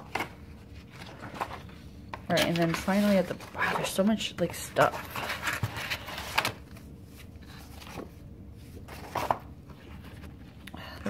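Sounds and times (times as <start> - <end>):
cards and paper rustling: 0.0 - 10.6.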